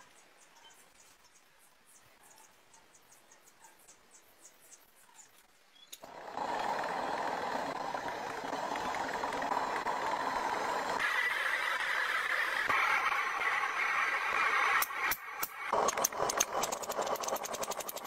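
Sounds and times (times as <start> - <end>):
forge burner roaring: 6.0 - 18.0.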